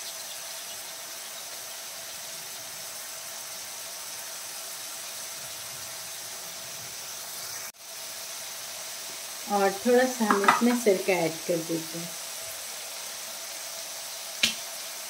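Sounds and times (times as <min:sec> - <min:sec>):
chicken sizzling in oil: 0:00.0 - 0:15.0.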